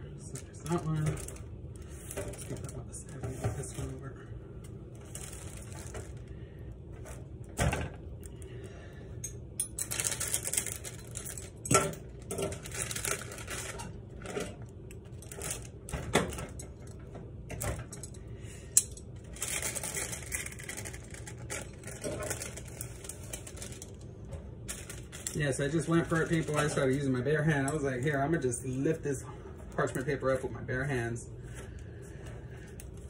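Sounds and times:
parchment paper rustling: 5.0s - 6.3s, 19.3s - 30.4s.

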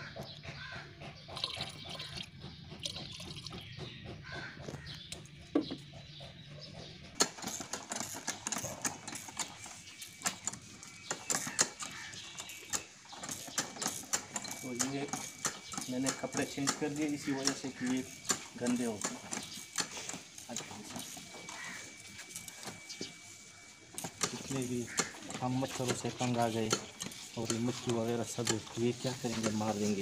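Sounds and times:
liquid trickling into plastic tank: 1.4s - 3.6s.

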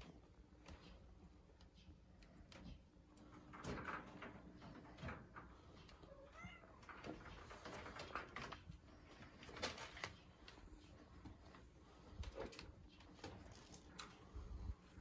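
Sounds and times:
kitten meowing faintly: 6.1s - 6.8s.

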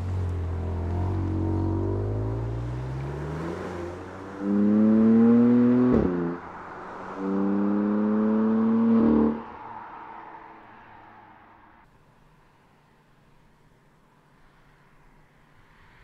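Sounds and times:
car engine revving hard: 0.6s - 9.5s.

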